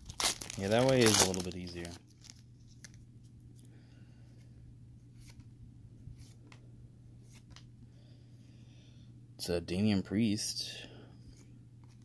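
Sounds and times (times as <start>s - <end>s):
trading cards rustling and clicking: 0.0s - 3.0s
low steady hum: 0.0s - 12.0s.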